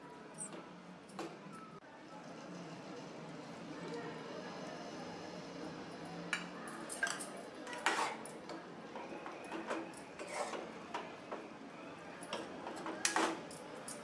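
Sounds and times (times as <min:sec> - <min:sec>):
spoon scraping metal pan: 0:10.2 - 0:10.6.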